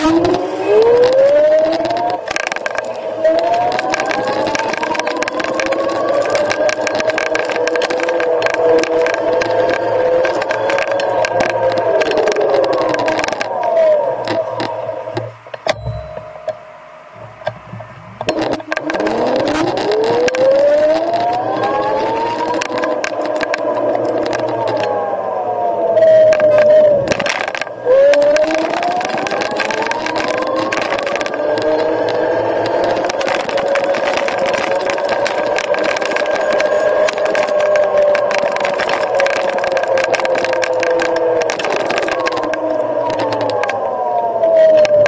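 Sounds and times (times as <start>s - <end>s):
electric scooter motor whining: 0.0s - 45.0s
wind buffeting microphone: 17.2s - 45.0s.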